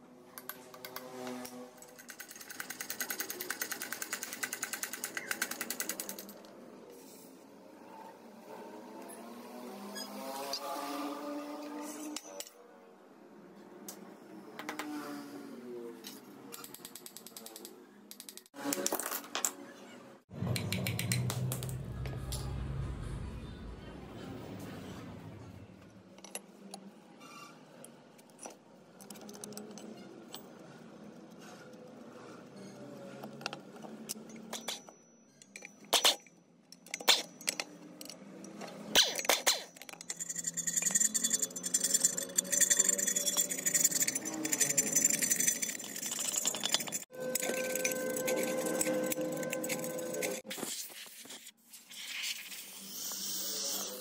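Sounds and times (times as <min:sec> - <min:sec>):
low hum: 0:20.3 - 0:25.9
metal parts clinking and scraping: 0:27.8 - 0:31.4, 0:33.2 - 0:50.5.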